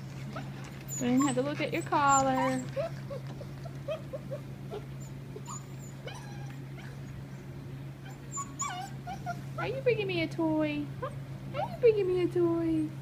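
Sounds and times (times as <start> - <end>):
puppies whimpering and yipping: 0.2 - 9.7, 11.0 - 11.9.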